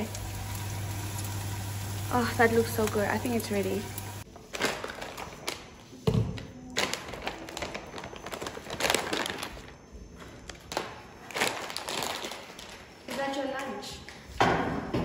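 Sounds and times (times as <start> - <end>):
plastic bag crinkling: 4.4 - 5.8, 6.7 - 13.1.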